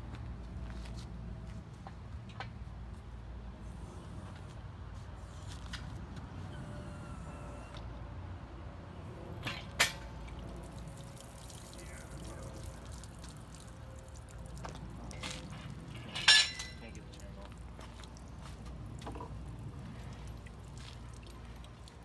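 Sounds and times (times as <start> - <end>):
fluid dripping: 9.4 - 22.0.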